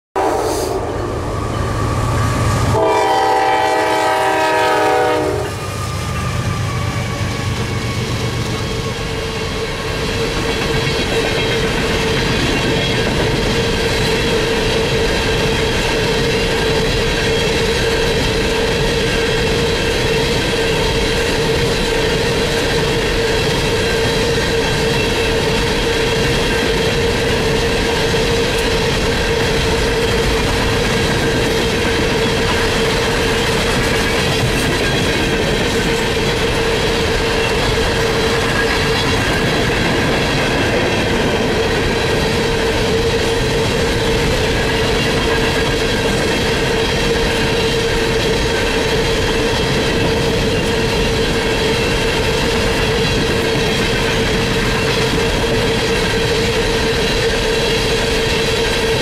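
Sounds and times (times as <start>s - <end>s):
locomotive air horn chord: 0.2s - 1.0s, 2.6s - 5.9s
passing train rumble: 0.2s - 59.0s
wheel and rail noise: 0.2s - 59.0s.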